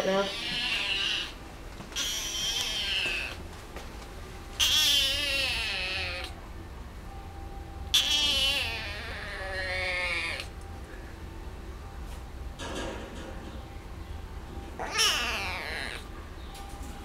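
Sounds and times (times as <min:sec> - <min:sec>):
kitten meowing: 0:00.3 - 0:01.4, 0:02.0 - 0:03.4, 0:04.6 - 0:06.4, 0:07.9 - 0:10.5, 0:14.8 - 0:16.0.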